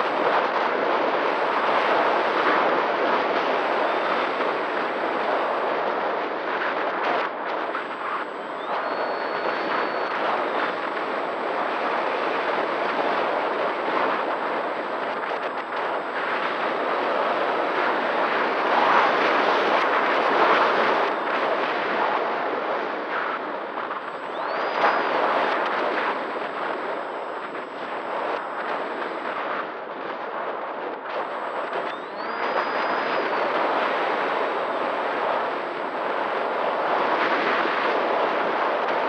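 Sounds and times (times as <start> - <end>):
motor and propeller drone: 7.8 - 13.4, 24.1 - 28.0, 31.2 - 35.0.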